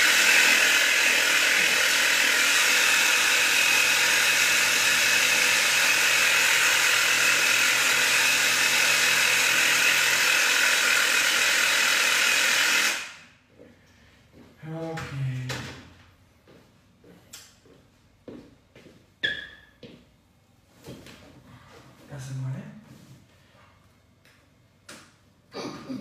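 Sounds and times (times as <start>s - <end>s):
small electric motor running: 0.0s - 13.2s.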